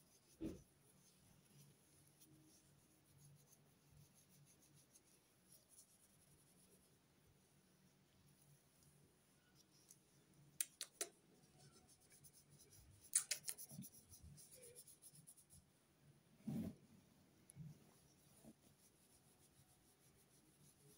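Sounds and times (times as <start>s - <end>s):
hand stroking cat fur: 10.9s - 15.7s.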